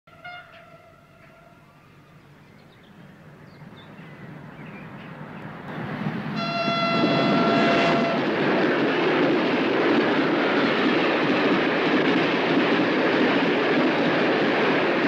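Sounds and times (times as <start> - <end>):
train horn blast: 0.1 - 1.9, 6.4 - 8.4
electric train passing: 0.1 - 15.0.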